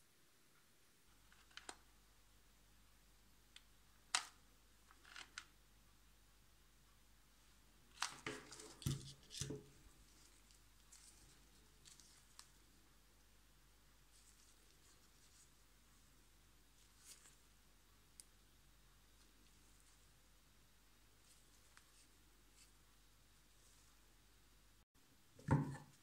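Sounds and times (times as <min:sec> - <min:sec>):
knocks and rustles: 0:25.4 - 0:26.0.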